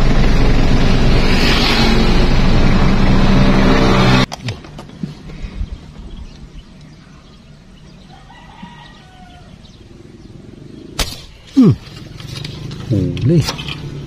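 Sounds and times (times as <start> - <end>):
rooster crowing: 8.1 - 9.6
air rifle shot: 11.0 - 11.4.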